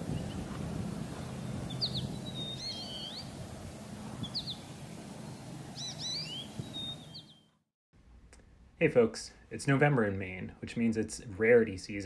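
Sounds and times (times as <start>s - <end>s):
birds chirping: 0.0s - 7.6s.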